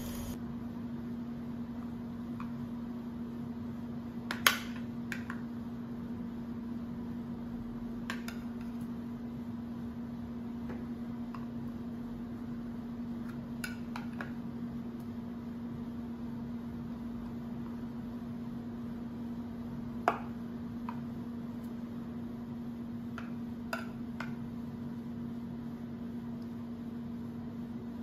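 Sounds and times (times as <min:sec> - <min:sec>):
steady low hum: 0:00.0 - 0:00.6.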